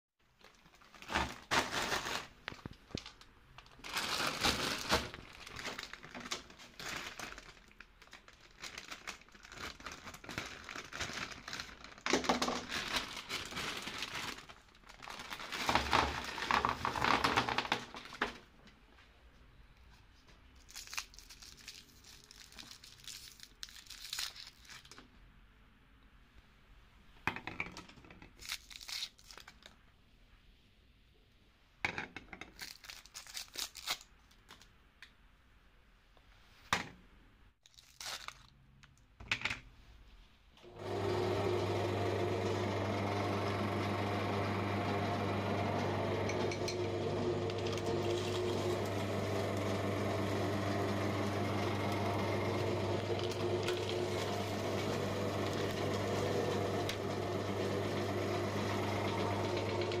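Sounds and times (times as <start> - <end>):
plastic wrappers crinkling and tearing: 0.2 - 18.5, 20.5 - 25.1, 28.3 - 29.8, 32.5 - 34.8, 37.6 - 39.1.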